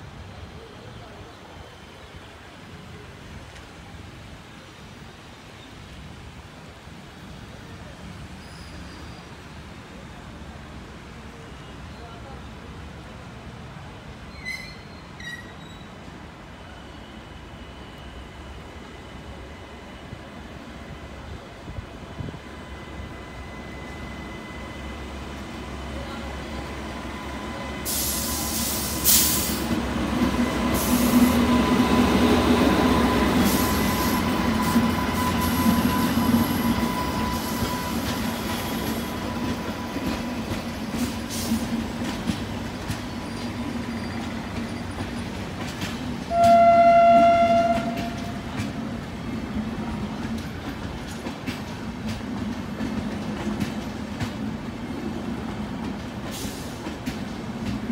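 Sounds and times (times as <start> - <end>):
electric locomotive whine: 14.3 - 57.9
train horn blast: 46.3 - 48.6
train coaches clattering over rail joints: 50.0 - 54.6.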